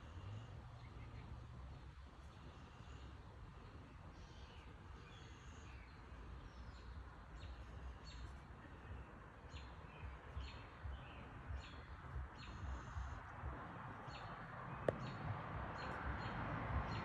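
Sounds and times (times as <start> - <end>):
faint low outdoor rumble: 0.0 - 17.0
songbird chirping: 0.0 - 17.0.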